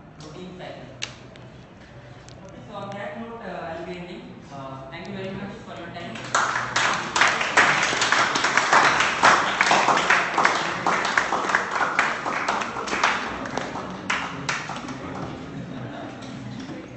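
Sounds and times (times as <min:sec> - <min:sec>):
people applauding: 0:06.1 - 0:15.5.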